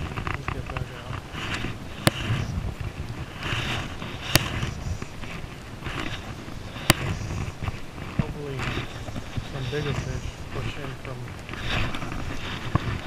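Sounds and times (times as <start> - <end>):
fly line hissing through rod guides: 1.3 - 2.6, 3.3 - 10.8
sharp clicks: 4.2 - 5.1.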